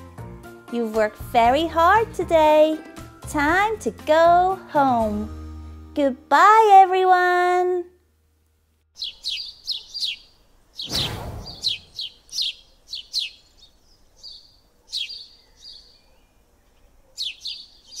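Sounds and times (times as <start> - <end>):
small birds chirping: 8.9 - 18.0
whoosh: 10.8 - 12.0.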